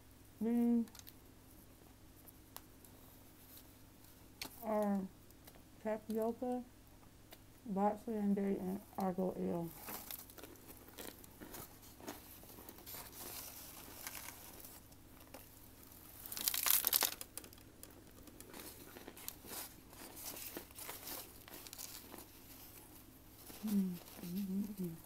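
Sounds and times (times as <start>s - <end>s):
dry food crunching: 9.7s - 24.3s
crunching bite: 9.8s - 22.8s.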